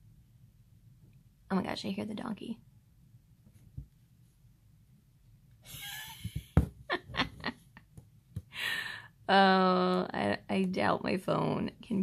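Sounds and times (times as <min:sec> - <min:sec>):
close breathing: 0:08.4 - 0:09.2.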